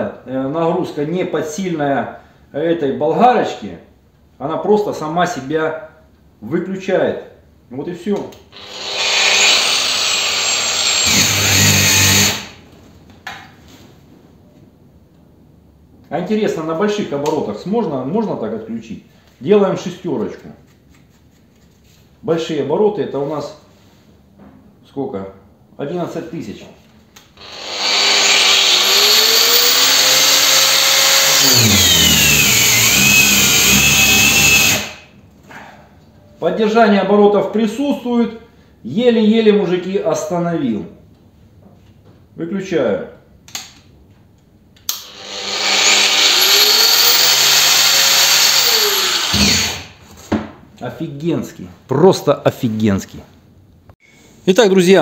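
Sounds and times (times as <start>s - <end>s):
angle grinder whining: 8.6s - 12.6s, 27.4s - 35.1s, 44.9s - 50.0s.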